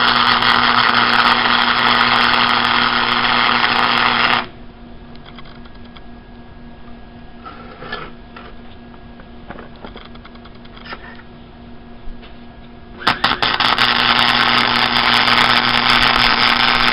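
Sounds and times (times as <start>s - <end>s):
arc welder crackling sizzle: 0.0s - 6.1s, 12.9s - 16.9s.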